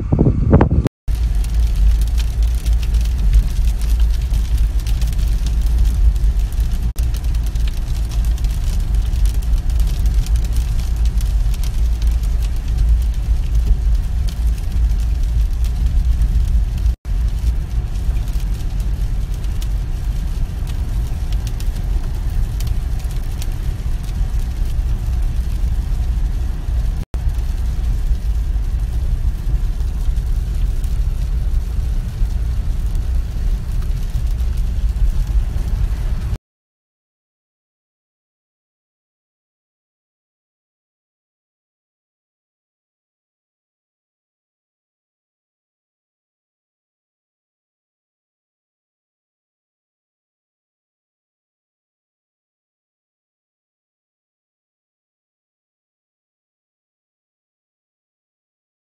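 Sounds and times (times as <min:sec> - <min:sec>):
engine and tyre rumble: 0:00.0 - 0:36.4
rain and spray hiss: 0:01.1 - 0:36.4.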